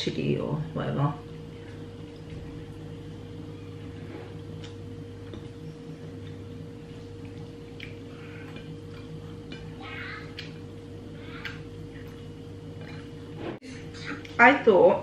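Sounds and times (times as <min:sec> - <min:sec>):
appliance electrical hum: 0:00.0 - 0:15.0
person eating and chewing: 0:04.3 - 0:14.4.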